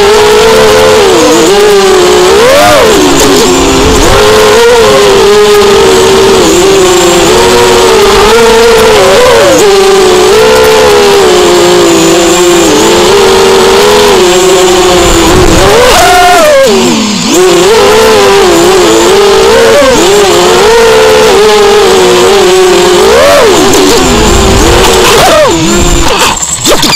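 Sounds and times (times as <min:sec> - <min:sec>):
quadcopter motors whining: 0:00.0 - 0:26.9.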